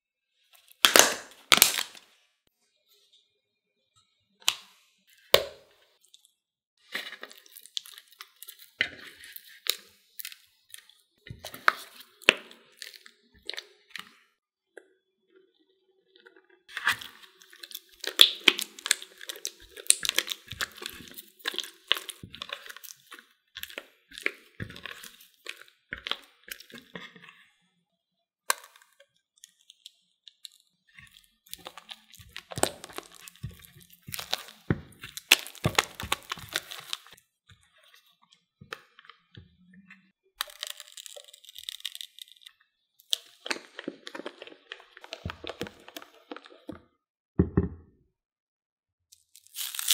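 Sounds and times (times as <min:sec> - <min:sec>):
spatula stirring thick cream: 0:06.9 - 0:14.1, 0:16.7 - 0:27.4, 0:31.0 - 0:39.7.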